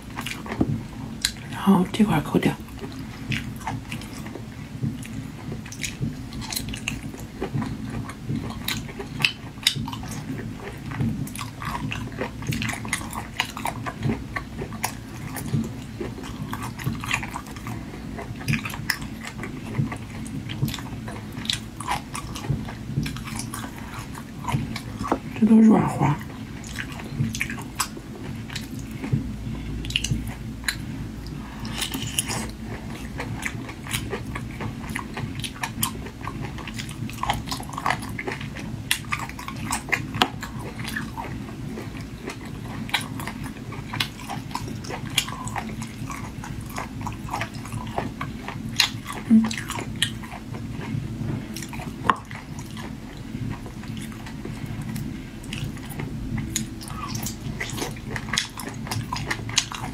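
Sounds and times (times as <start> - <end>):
sucking and wet chewing: 0.0 - 1.5, 2.6 - 59.9.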